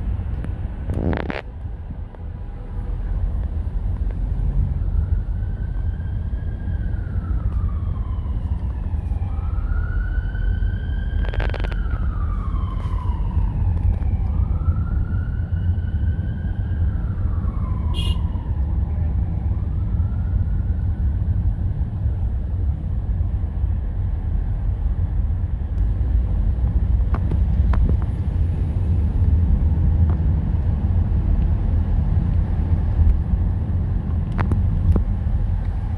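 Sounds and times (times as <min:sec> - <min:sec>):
car road and engine rumble: 0:00.0 - 0:35.9
emergency siren wailing: 0:04.5 - 0:21.2.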